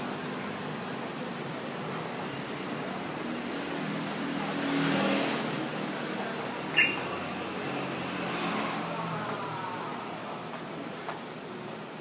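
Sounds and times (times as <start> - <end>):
street traffic: 0.0 - 12.0
high falling squeak: 6.7 - 7.1.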